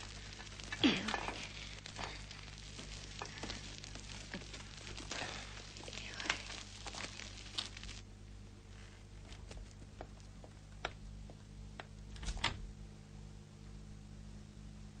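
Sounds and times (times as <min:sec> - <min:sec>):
sharp snaps of fire: 0:00.0 - 0:12.5
fire crackling and hissing: 0:00.0 - 0:12.6.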